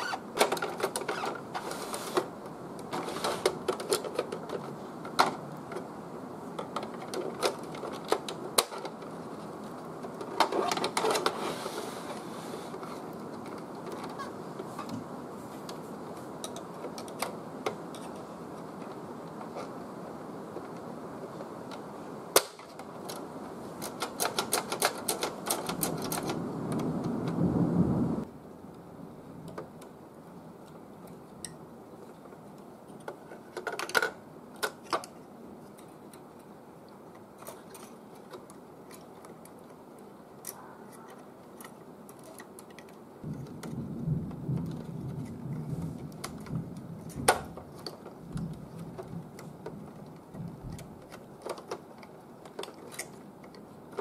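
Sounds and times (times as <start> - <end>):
plastic parts rubbing: 0.0 - 19.8, 20.6 - 26.9, 32.0 - 54.0
small plastic clicks: 21.6 - 27.4, 30.6 - 54.0.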